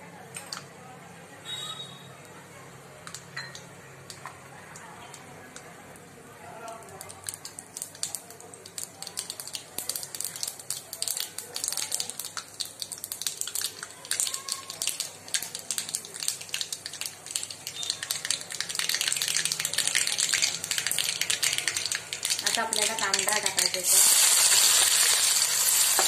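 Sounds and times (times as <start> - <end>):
mustard seeds popping in hot oil: 3.0 - 5.7, 6.6 - 26.0.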